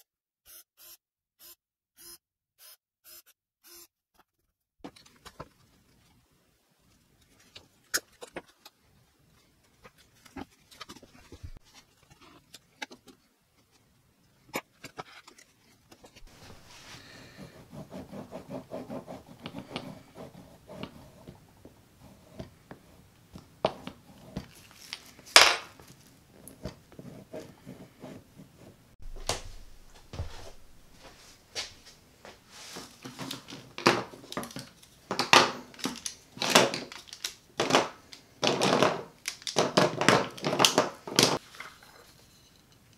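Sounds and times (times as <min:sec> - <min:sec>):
thread rustling through leather: 0:15.2 - 0:17.8.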